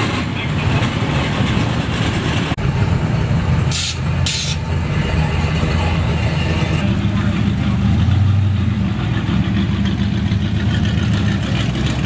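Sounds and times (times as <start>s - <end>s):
old vehicle engines driving past: 0.0s - 12.0s
short hisses: 3.7s - 4.6s.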